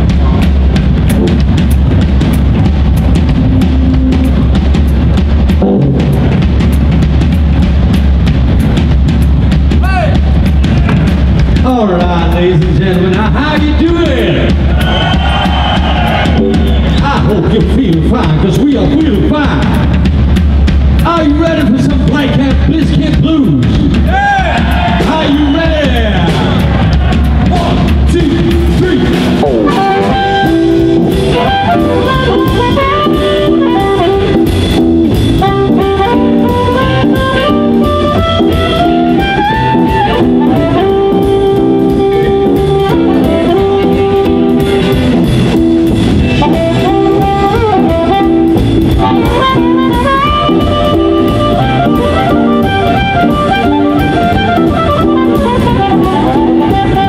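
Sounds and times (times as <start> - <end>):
blues band playing: 0.0 - 57.0
amplified harmonica melody: 29.5 - 57.0.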